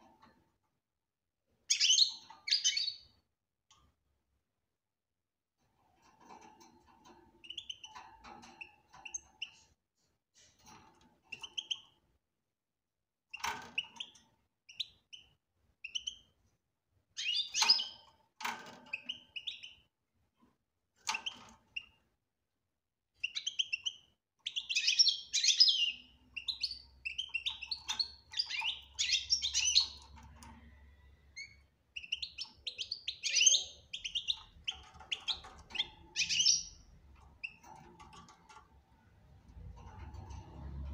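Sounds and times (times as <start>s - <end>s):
finch chirping and twittering: 1.6s - 3.2s, 6.3s - 9.8s, 10.4s - 12.0s, 13.3s - 16.4s, 17.1s - 19.9s, 21.0s - 22.0s, 23.2s - 38.6s.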